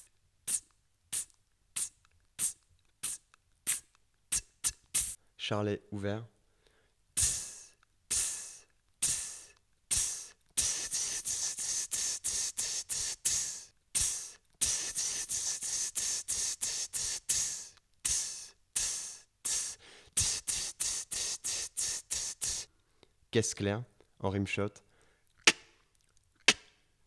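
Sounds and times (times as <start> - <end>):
beatboxed hi-hat hisses: 0.0 - 5.2, 7.2 - 22.7.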